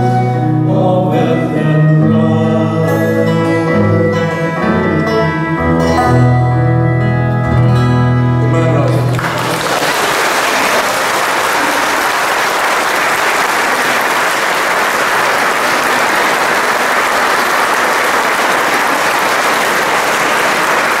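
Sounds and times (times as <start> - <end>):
audience applauding: 8.9 - 21.0.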